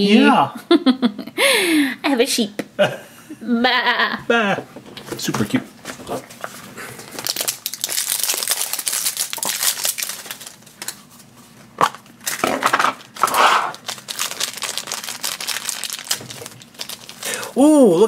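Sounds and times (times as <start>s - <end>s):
plastic packaging crackling: 7.0s - 11.2s, 12.0s - 17.4s.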